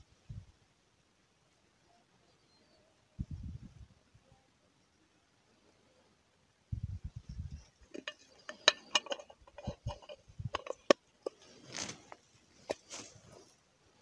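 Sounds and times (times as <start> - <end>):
rustling of jacket or reeds: 11.3 - 13.6.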